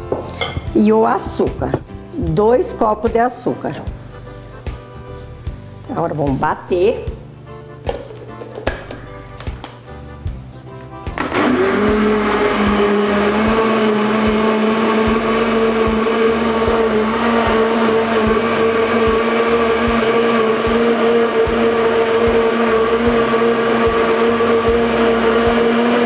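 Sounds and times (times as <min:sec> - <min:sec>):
electric blender running: 0:11.1 - 0:26.0.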